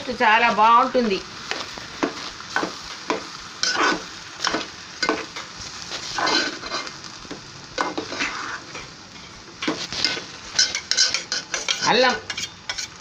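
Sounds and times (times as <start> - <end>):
metal spoon scraping a pot: 6.2 - 6.9, 7.8 - 13.0.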